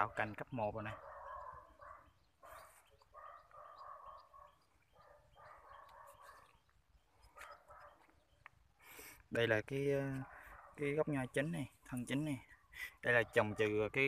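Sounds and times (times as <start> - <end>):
faint animal calls: 0.9 - 8.3.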